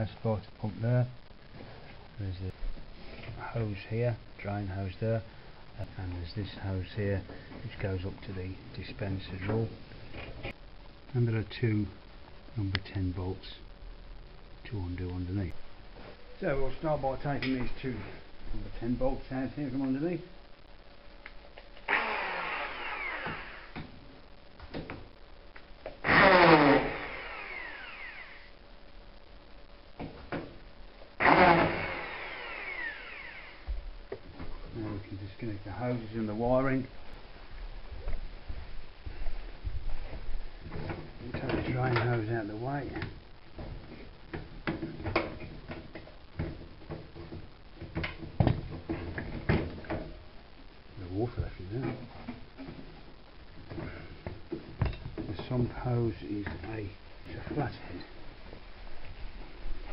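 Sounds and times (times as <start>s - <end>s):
power drill whining: 21.9s - 23.8s, 26.0s - 28.5s, 31.2s - 33.7s.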